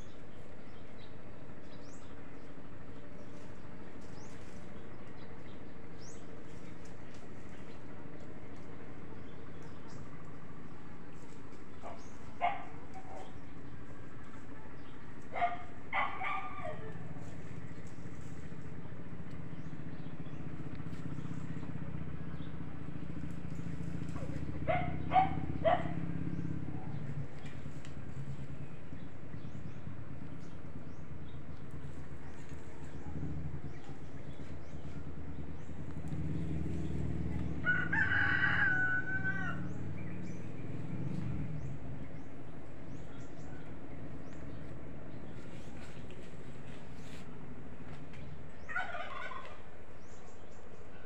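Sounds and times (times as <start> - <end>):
steady low hum: 0.0 - 51.0
dog barking: 11.8 - 13.4, 15.3 - 17.0, 24.2 - 26.1
rooster crowing: 37.6 - 39.8.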